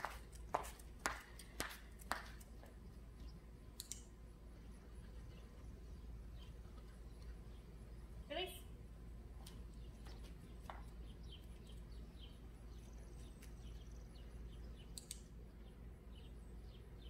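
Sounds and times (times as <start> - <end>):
small birds chirping: 0.0 - 17.0
steady low hum: 0.0 - 17.0
soft clicks: 3.8 - 4.1, 14.9 - 15.3.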